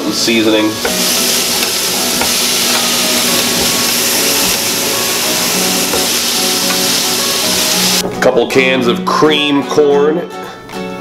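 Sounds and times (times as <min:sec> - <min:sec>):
meat sizzling on a grill: 0:00.0 - 0:08.0
background music: 0:00.0 - 0:11.0.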